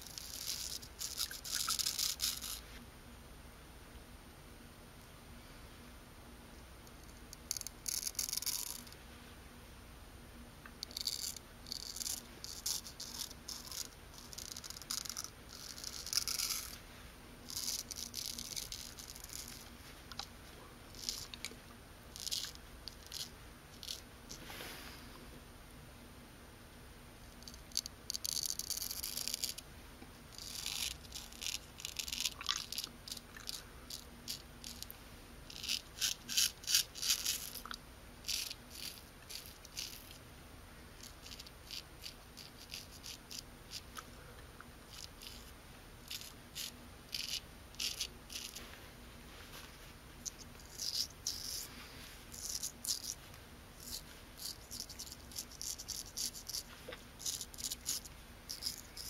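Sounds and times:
razor scraping stubble: 0.0s - 2.6s, 10.8s - 16.8s, 17.5s - 19.8s, 20.9s - 21.5s, 22.2s - 24.4s, 30.3s - 34.9s, 35.5s - 40.2s, 41.0s - 44.0s, 44.9s - 48.7s, 50.2s - 59.0s.

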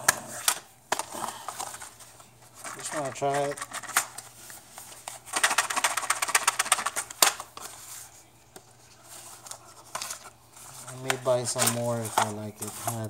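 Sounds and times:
cardboard boxes handled: 7.5s - 13.0s.

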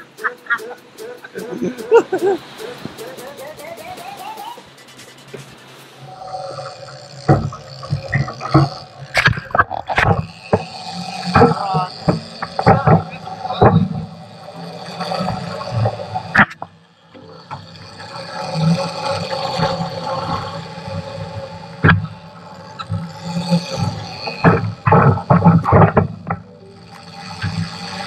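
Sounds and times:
outboard motors running: 0.0s - 28.0s.

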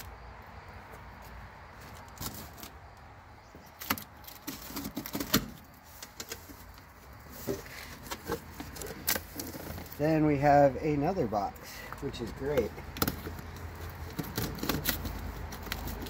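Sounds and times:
cardboard flaps crackling and snapping: 3.6s - 6.9s, 12.5s - 16.0s
blade slitting packing tape: 13.9s - 16.0s.

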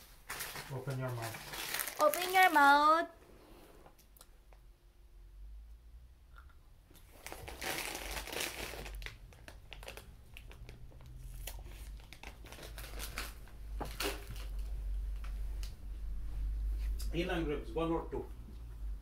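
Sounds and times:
plastic packet crinkling: 0.2s - 3.1s, 7.1s - 14.7s.

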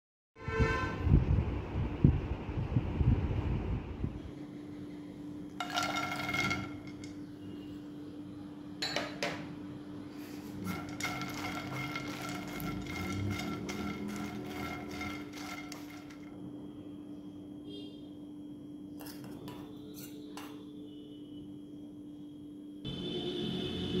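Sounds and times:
clatter and knocks on pan: 5.6s - 7.1s, 10.7s - 16.3s
spatula scraping a frying pan: 10.3s - 16.3s.

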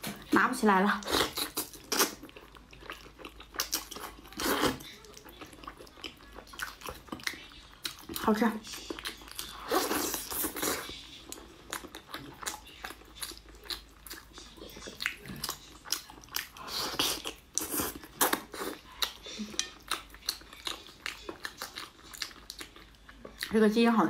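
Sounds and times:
person chewing: 1.0s - 23.5s.

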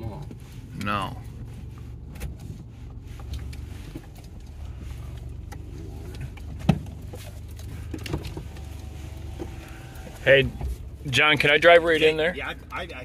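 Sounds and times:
engine and road rumble: 0.0s - 13.0s.

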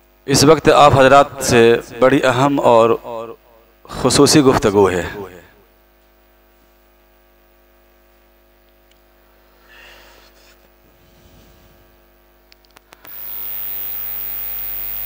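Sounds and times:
loud hum and hiss: 0.0s - 5.9s, 9.2s - 15.0s
electrical mains hum: 0.0s - 15.0s.

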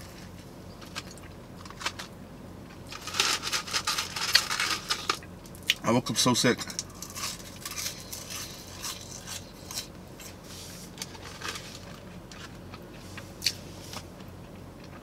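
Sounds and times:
chewing crunchy food: 6.7s - 15.0s.

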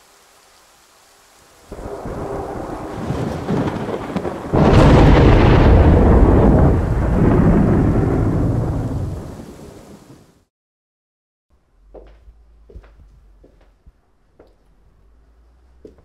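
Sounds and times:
steady rain: 0.0s - 10.5s
thunderclap rumbling: 1.7s - 10.4s.

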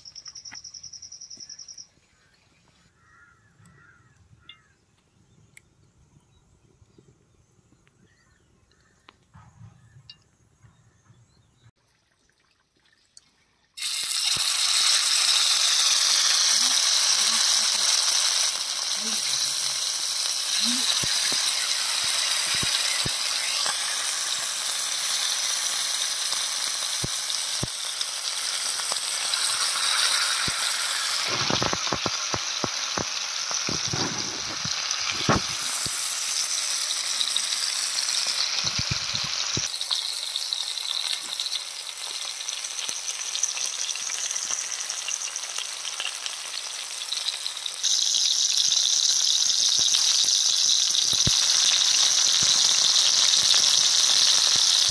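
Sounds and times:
fish sizzling in oil: 13.8s - 54.9s.

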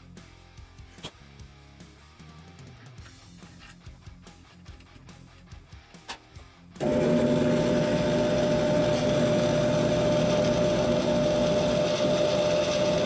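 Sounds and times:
drill press cutting steel: 6.8s - 13.0s.

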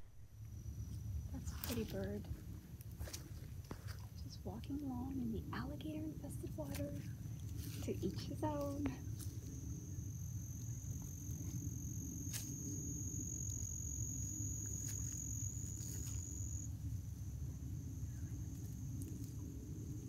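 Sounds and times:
low rumble: 0.0s - 20.0s
insect high-pitched trill: 5.9s - 20.0s.

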